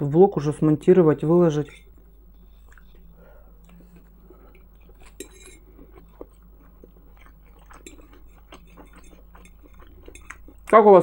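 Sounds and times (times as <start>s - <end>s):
metal fork scraping a plate: 1.6s - 1.9s, 5.0s - 5.6s
person chewing: 1.8s - 10.8s.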